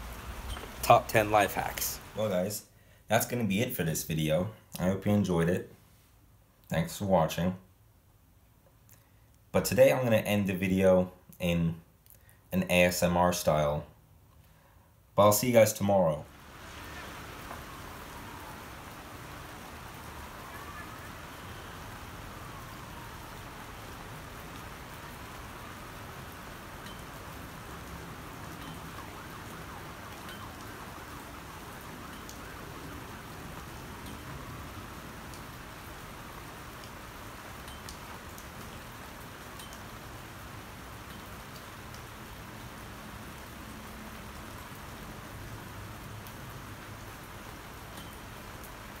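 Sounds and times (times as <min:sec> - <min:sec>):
heavy rain falling: 0:00.0 - 0:02.5, 0:16.2 - 0:49.0
faint wavering siren: 0:16.4 - 0:35.6
drips ticking: 0:24.4 - 0:34.7, 0:36.8 - 0:38.9, 0:39.5 - 0:40.1, 0:47.9 - 0:48.7.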